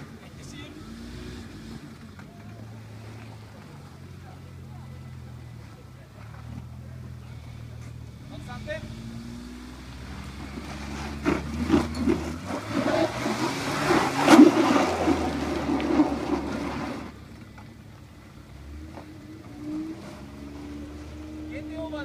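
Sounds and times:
engine idling: 0:01.9 - 0:09.0
tyres scrabbling in mud: 0:10.0 - 0:21.3.

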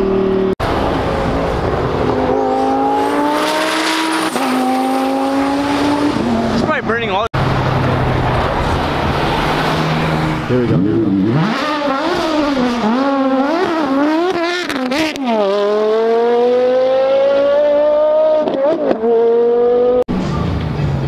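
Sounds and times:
car engine revving hard: 0:00.0 - 0:06.7, 0:08.0 - 0:20.0.

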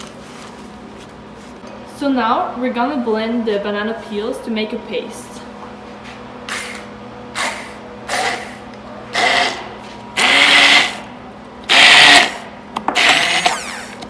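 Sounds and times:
immersion blender motor whine: 0:08.1 - 0:14.0.

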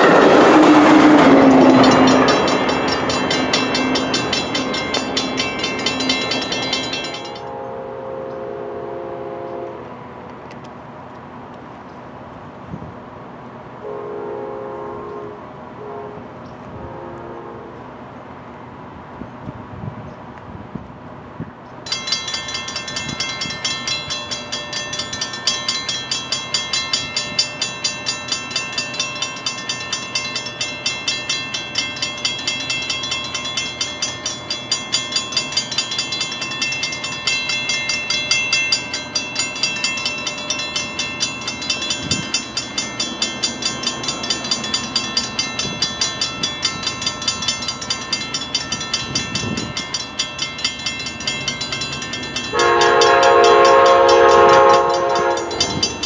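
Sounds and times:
railroad crossing bell ringing: 0:00.0 - 0:10.2, 0:21.8 - 0:56.0.

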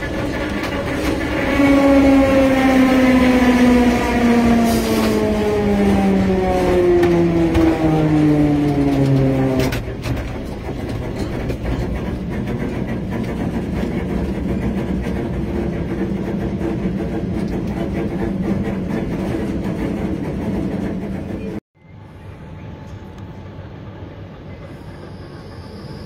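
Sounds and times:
rattles and clicks: 0:00.0 - 0:01.6, 0:05.0 - 0:21.6
low motor hum: 0:00.0 - 0:21.6
tram wheels rumbling on rail: 0:00.0 - 0:26.0
falling whine: 0:00.8 - 0:10.0.

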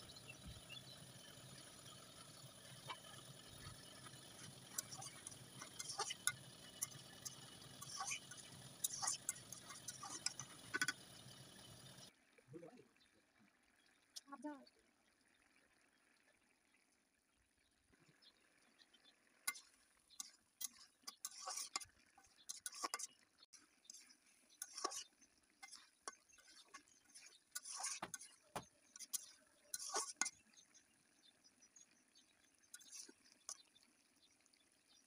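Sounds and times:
spatula scraping a pan: 0:02.8 - 0:11.1, 0:19.5 - 0:23.2, 0:23.8 - 0:30.6, 0:32.7 - 0:33.6.

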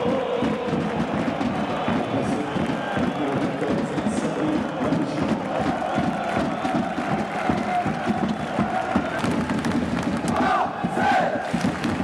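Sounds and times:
crowd chanting in unison: 0:00.0 - 0:03.2, 0:10.2 - 0:11.9
crowd noise: 0:00.0 - 0:12.0.

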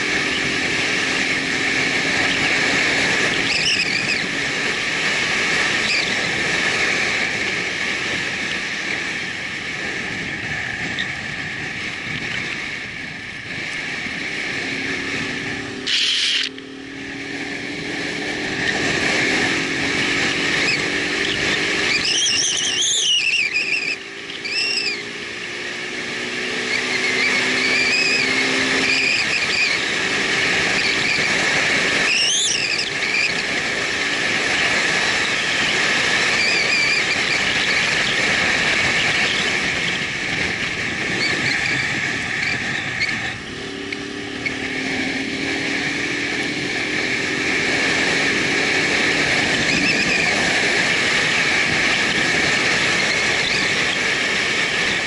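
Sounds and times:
motorcycle engine: 0:00.0 - 0:55.0
wind and road rush: 0:00.0 - 0:55.0
short high squeaks: 0:03.3 - 0:04.2, 0:15.8 - 0:16.6, 0:20.6 - 0:25.0, 0:32.1 - 0:33.4, 0:35.2 - 0:38.2.

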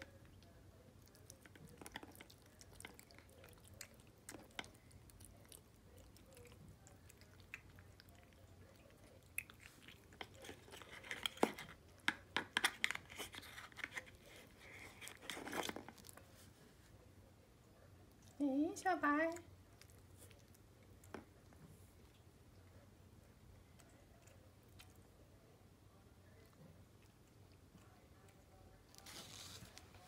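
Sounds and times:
cat chewing and licking: 0:00.0 - 0:30.0.

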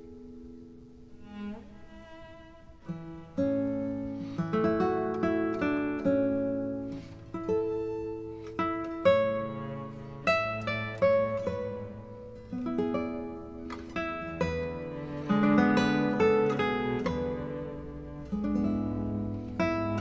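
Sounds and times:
plucked acoustic guitar: 0:00.0 - 0:20.0.

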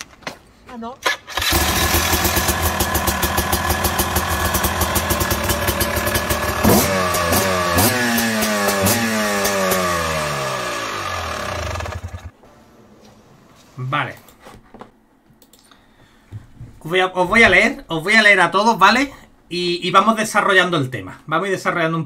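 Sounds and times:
two-stroke motorbike engine revving: 0:01.3 - 0:12.3.

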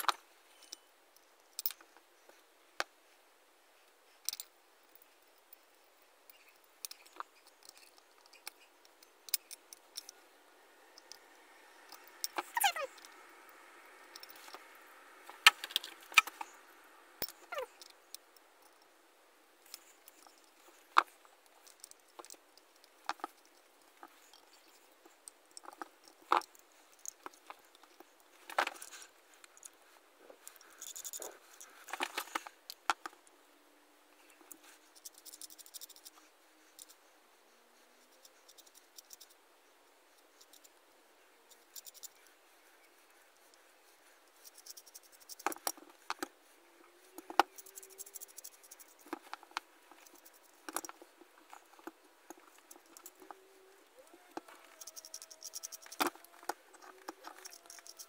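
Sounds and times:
hand drill parts clicking and scraping: 0:06.3 - 0:10.2, 0:11.9 - 0:13.2, 0:14.1 - 0:14.7, 0:19.6 - 0:33.3, 0:34.3 - 0:37.0, 0:44.3 - 0:46.3, 0:47.0 - 0:58.0.

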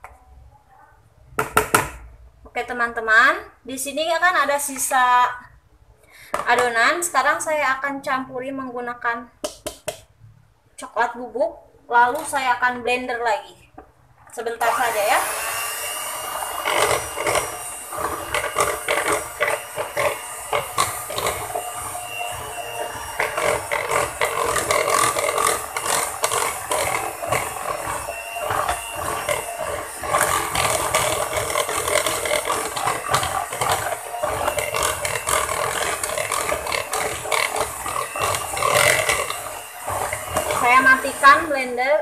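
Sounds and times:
electric hand mixer whisking: 0:14.6 - 0:42.0.

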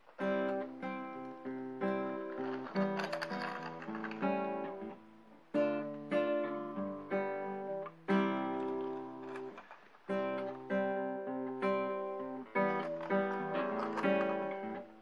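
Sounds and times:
acoustic guitar chords ringing: 0:00.0 - 0:15.0.

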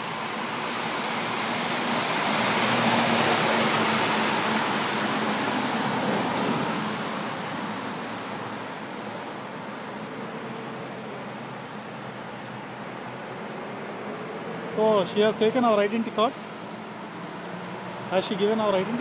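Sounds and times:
vehicle passing by: 0:00.0 - 0:08.8.

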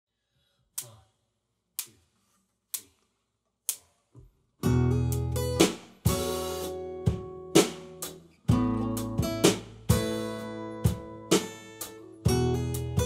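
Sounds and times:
electric bass: 0:04.6 - 0:06.9, 0:07.5 - 0:11.4, 0:12.1 - 0:13.0
strummed acoustic guitar: 0:04.6 - 0:13.0
drum kit hits: 0:05.5 - 0:13.0.

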